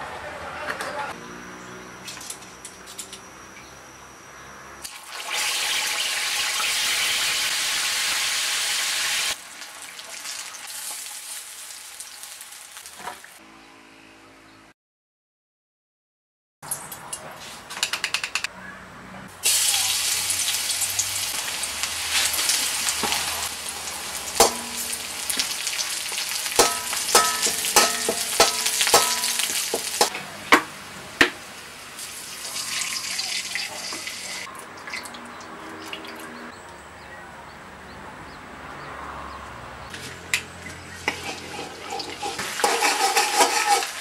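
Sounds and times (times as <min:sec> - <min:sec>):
garlic and chillies sizzling in oil: 0:04.8 - 0:13.4, 0:19.4 - 0:34.5, 0:40.8 - 0:44.0
metal spatula knocking on wok: 0:24.4 - 0:25.1, 0:26.6 - 0:31.4.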